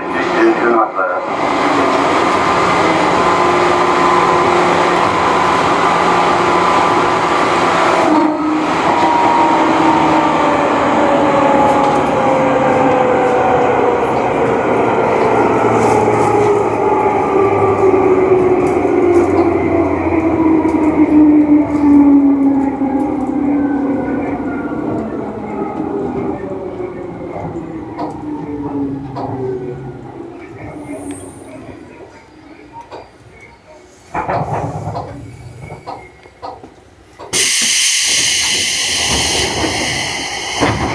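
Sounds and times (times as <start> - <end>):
train running noise: 0.0 - 40.9.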